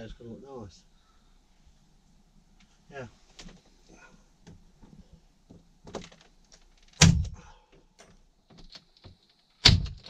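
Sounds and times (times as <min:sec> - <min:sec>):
nail gun bang: 0:06.9 - 0:07.4, 0:09.6 - 0:10.0.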